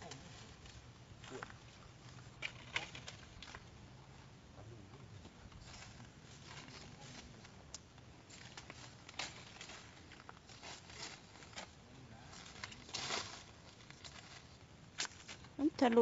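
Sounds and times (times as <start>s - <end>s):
dry leaves crackling: 5.6s - 16.0s.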